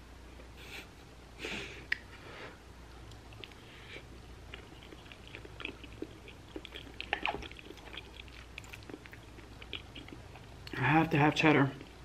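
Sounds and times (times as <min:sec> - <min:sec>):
person chewing food: 0:02.9 - 0:12.0.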